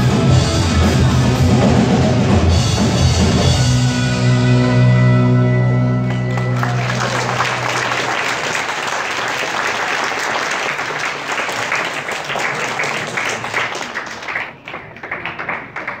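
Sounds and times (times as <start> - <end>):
audience applauding: 6.0 - 16.0.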